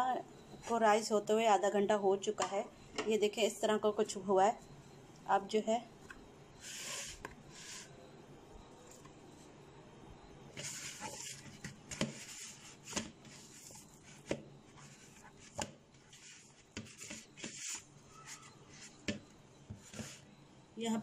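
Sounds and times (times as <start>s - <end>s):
hands rubbing dough: 10.6s - 19.0s.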